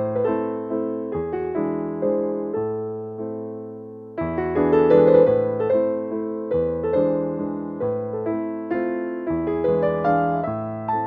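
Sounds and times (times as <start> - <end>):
slow piano chords: 0.0 - 11.0.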